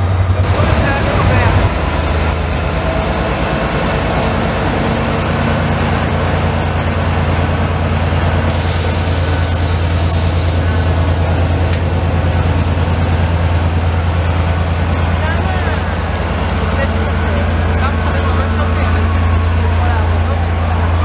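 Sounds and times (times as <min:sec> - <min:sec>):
diesel locomotive engine droning: 0:00.0 - 0:21.0
hiss: 0:08.5 - 0:10.6.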